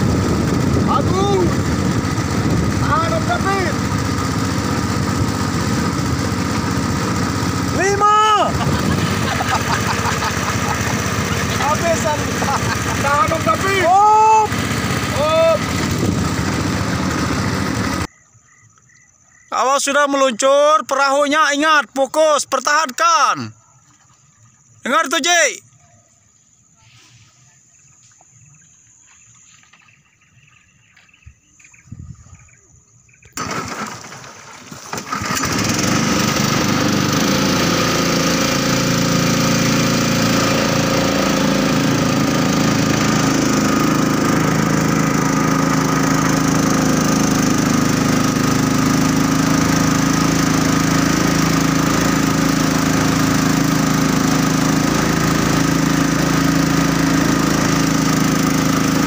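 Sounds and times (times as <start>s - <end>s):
small boat engine running: 0.0s - 18.1s, 33.1s - 59.0s.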